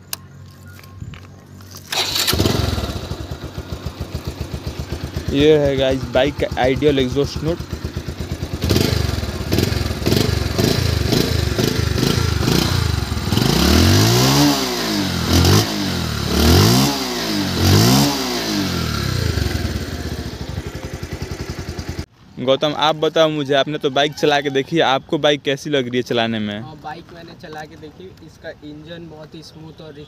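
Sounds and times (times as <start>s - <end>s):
motorcycle engine idling and revving: 0.1s - 22.1s.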